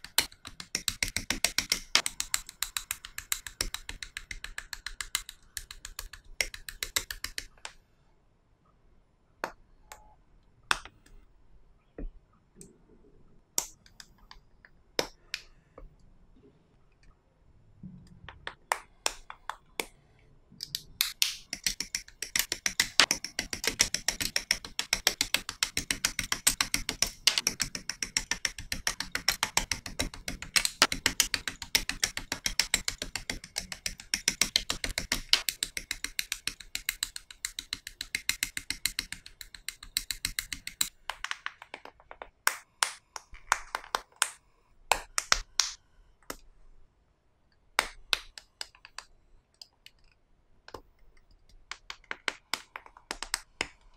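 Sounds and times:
plastic model parts clicking: 20.6 - 42.2.

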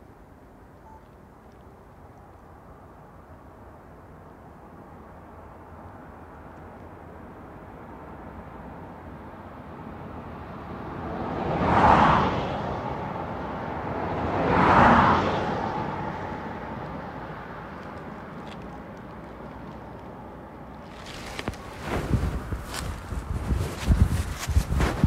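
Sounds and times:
vehicles passing by: 2.7 - 25.0.

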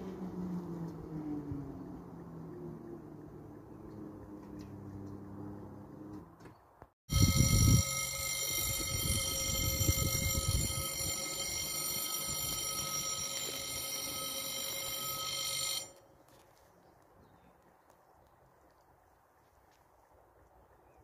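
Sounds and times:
level crossing warning bell: 7.1 - 16.2.

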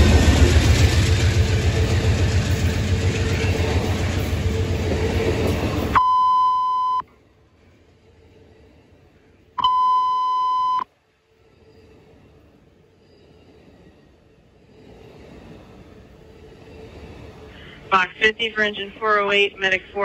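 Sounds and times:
train passing: 0.0 - 6.0, 7.0 - 20.0
radio alert beeps: 6.0 - 7.0, 9.6 - 10.8.

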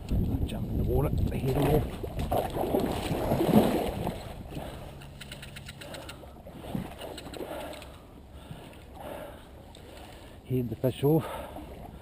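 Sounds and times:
water splashing from wading: 1.4 - 10.4.

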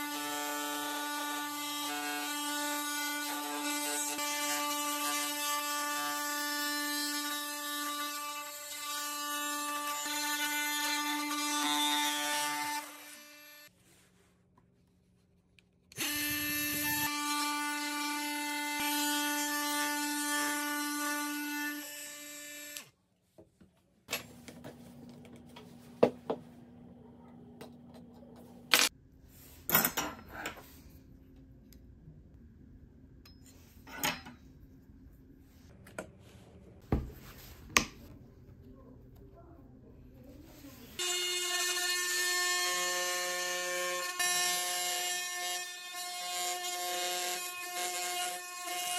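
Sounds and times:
oscillating multi-tool cutting wood: 15.9 - 22.9, 41.0 - 48.9.

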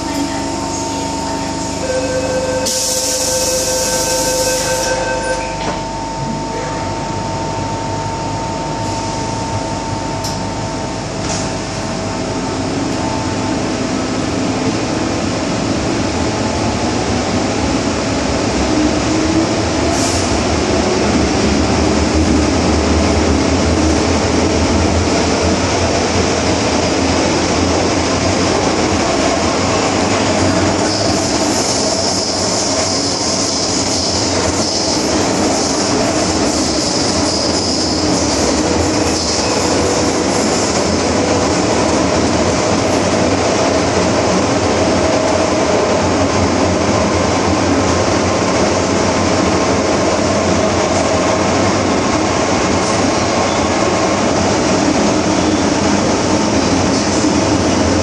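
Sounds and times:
wheels rumbling on rails: 0.0 - 58.0
train doors hissing shut: 2.6 - 5.8, 19.9 - 20.4.

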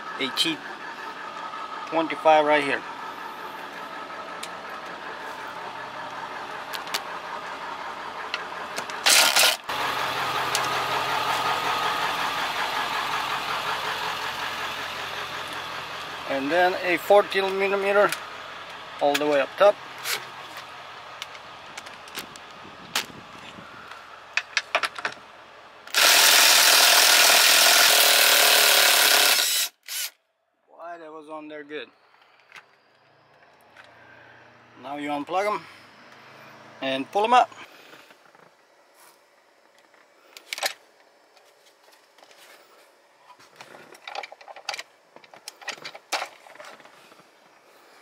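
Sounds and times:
power tool running: 8.3 - 16.4, 25.9 - 30.2.

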